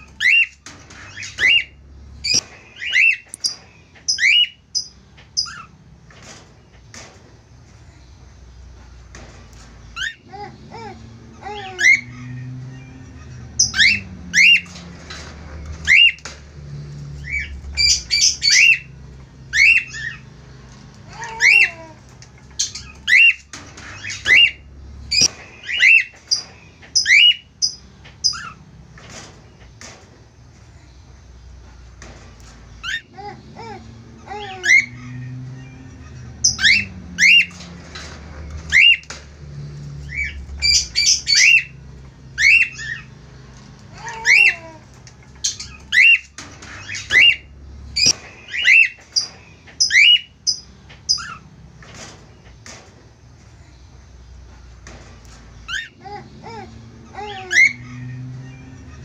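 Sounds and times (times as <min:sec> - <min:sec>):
cockatiels chirping and squawking: 0:00.0 - 0:06.4, 0:10.0 - 0:16.3, 0:17.2 - 0:18.9, 0:19.5 - 0:20.3, 0:21.0 - 0:30.0, 0:32.8 - 0:39.2, 0:40.0 - 0:41.8, 0:42.4 - 0:43.1, 0:43.7 - 0:44.8, 0:45.4 - 0:52.8, 0:55.7 - 0:59.0.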